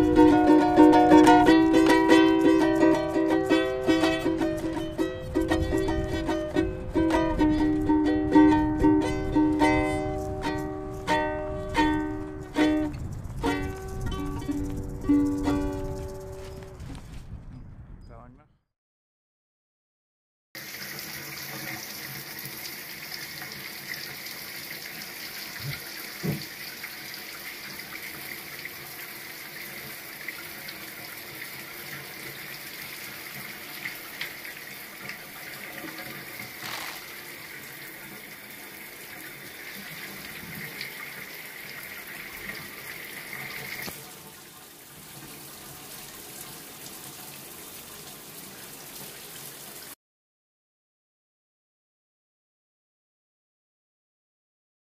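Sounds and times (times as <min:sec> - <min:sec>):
water running from bathtub tap: 0:20.6 - 0:50.0.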